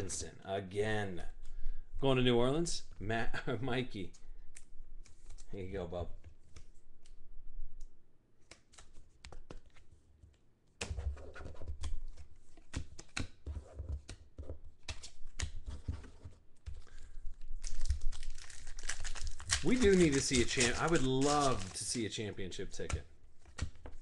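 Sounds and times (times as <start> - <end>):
trading cards handled on tabletop: 8.4 - 17.0.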